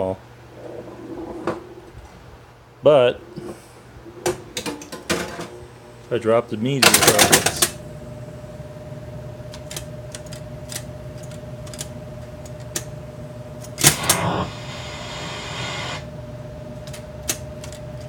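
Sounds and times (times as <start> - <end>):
faint steady hum: 0.0 - 18.0
pinball drop targets clicking: 6.8 - 7.8.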